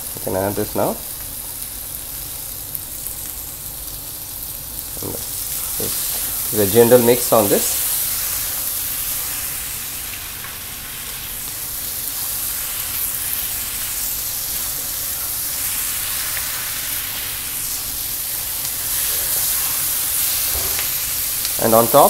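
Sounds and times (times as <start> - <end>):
food sizzling in pan: 0.0 - 22.0
spatula scraping and stirring: 13.6 - 21.1.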